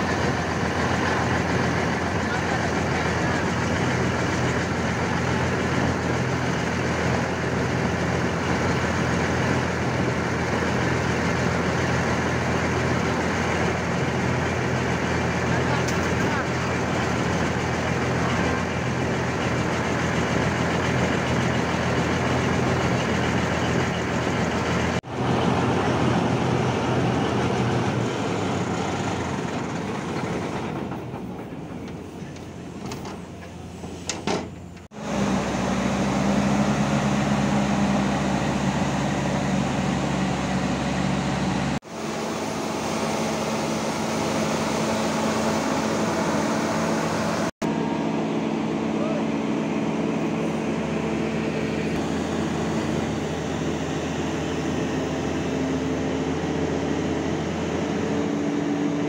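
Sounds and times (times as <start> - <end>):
diesel machinery droning: 0.0 - 59.0.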